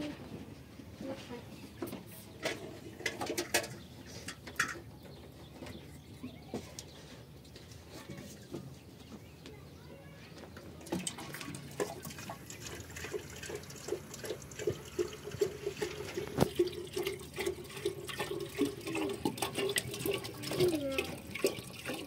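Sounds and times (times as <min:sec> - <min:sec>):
metal pots and dishes clinking: 0:02.4 - 0:04.9
liquid pouring into metal vessel: 0:10.8 - 0:22.0.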